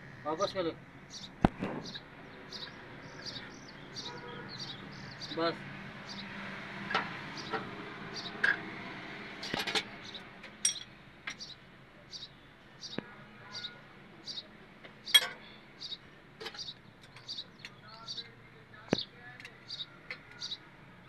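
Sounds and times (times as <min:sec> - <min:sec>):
spanner clinking on engine valve gear: 0:10.6 - 0:11.4, 0:15.1 - 0:15.4.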